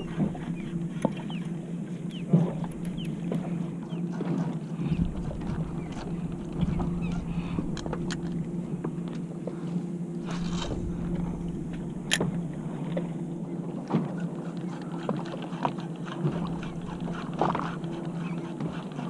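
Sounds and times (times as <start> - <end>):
boat motor humming: 0.0 - 19.0
seabirds chirping: 0.0 - 19.0.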